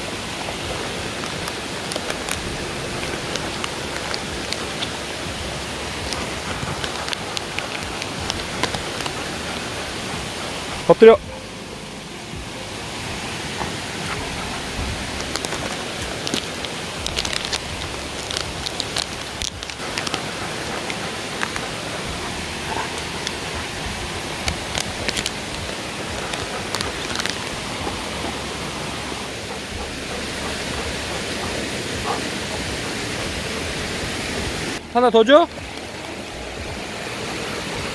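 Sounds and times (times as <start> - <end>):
rocky stream rushing: 0.0 - 37.9
short clicks and crackles: 15.2 - 21.7.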